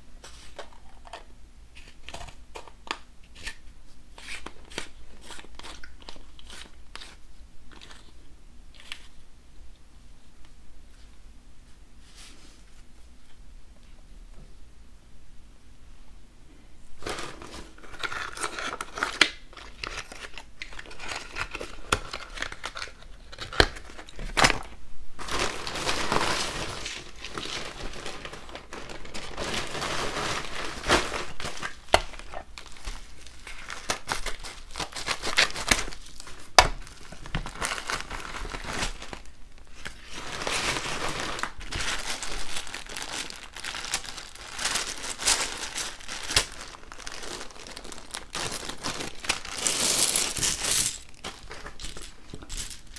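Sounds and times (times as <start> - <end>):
plastic packaging crinkling: 17.0 - 52.9.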